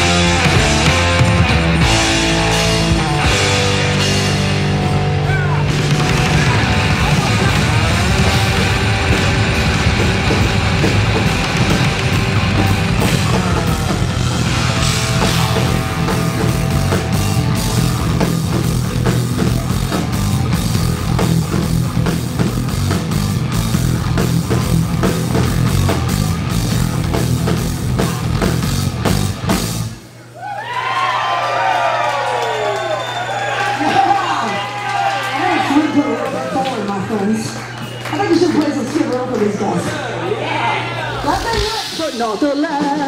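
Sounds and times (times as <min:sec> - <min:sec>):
electric guitar: 0:00.0 - 0:30.0
drum kit: 0:00.0 - 0:30.1, 0:41.2 - 0:43.0
electric bass: 0:00.0 - 0:30.2
rock band playing: 0:00.0 - 0:30.4, 0:35.3 - 0:43.0.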